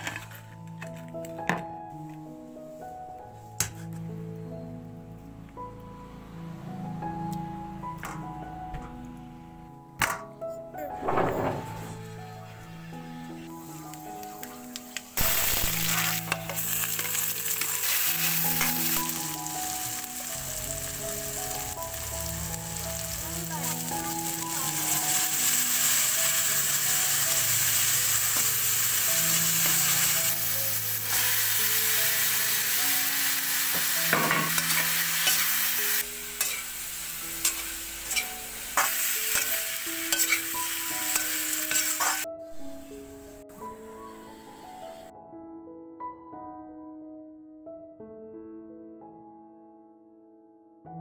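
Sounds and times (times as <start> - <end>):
food sizzling in wok: 11.0 - 43.4
spatula scraping and knocking pan: 36.4 - 36.6, 40.2 - 40.4.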